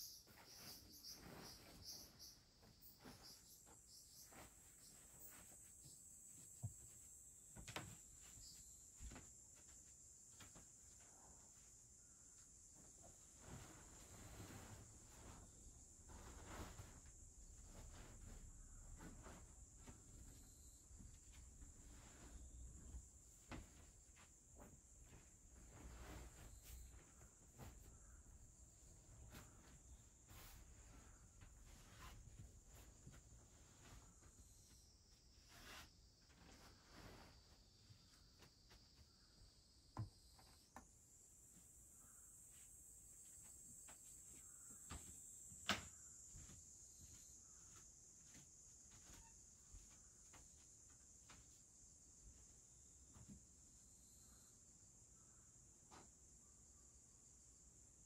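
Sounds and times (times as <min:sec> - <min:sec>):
high-pitched insect trill: 0:00.0 - 0:04.2
faint high-pitched hiss: 0:00.0 - 0:58.0.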